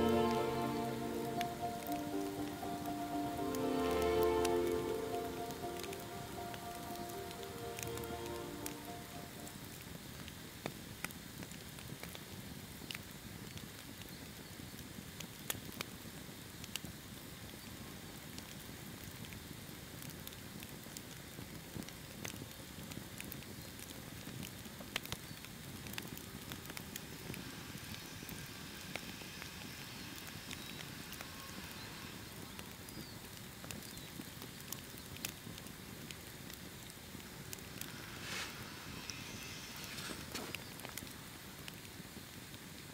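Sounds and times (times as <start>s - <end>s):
campfire crackling and popping: 0.0s - 42.9s
hiss of burning: 0.0s - 42.9s.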